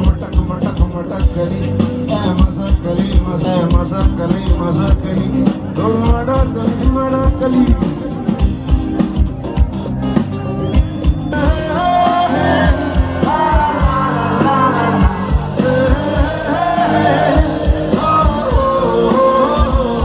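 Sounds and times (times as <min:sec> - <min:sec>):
person singing: 0:00.0 - 0:08.2, 0:11.3 - 0:20.0
rock band playing: 0:00.0 - 0:20.0
steady drum beat: 0:00.0 - 0:20.0.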